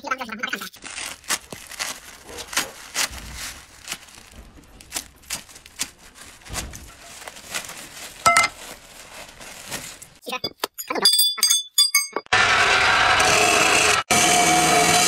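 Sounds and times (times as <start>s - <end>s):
plastic sacking ripping and rustling: 0.8s - 10.2s
loud ringing clink: 11.0s - 12.3s.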